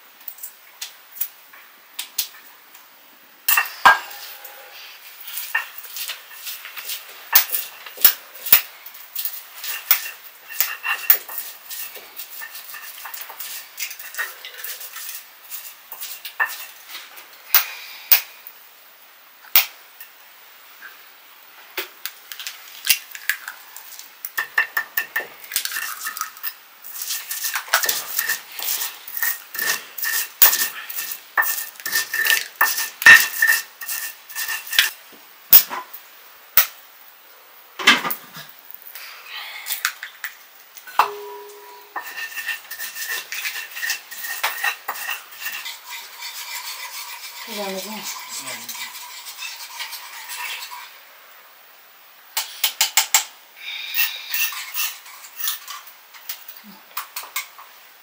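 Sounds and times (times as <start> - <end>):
metal utensils clinking on cookware: 3.5 - 4.6, 5.3 - 16.9, 24.4 - 35.0, 40.9 - 51.0, 53.9 - 57.6
faint metallic ring: 41.0 - 42.1.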